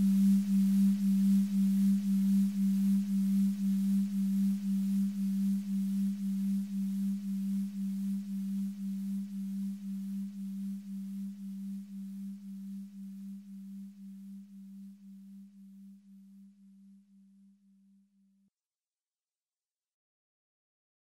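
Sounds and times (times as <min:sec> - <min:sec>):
faint hiss: 0:00.0 - 0:13.9.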